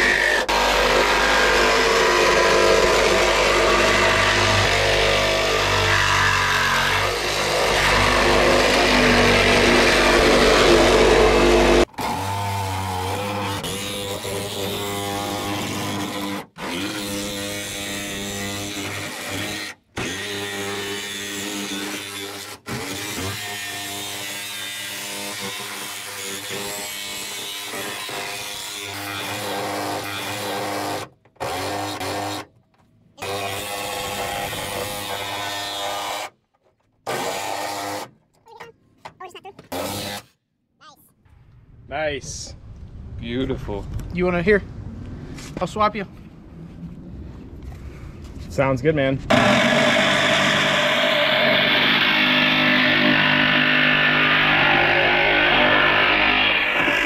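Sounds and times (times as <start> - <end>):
drill boring into sheet metal: 0.0 - 32.5, 33.2 - 36.3, 49.3 - 57.0.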